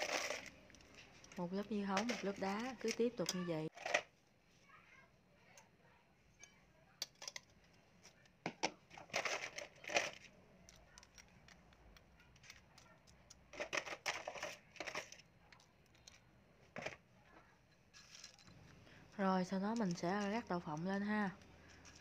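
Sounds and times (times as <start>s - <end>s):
spoon scraping crushed ice: 0.0s - 4.0s, 19.5s - 22.0s.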